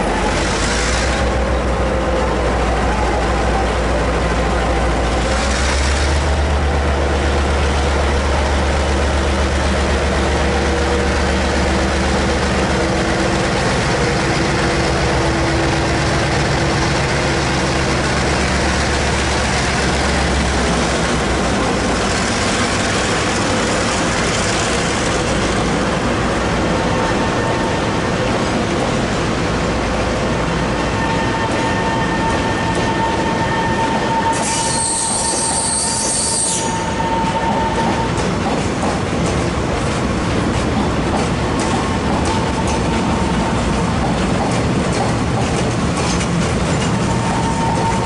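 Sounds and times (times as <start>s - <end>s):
locomotive engine deep drone: 0.0s - 32.9s
freight wagons rolling on rails: 34.4s - 48.0s.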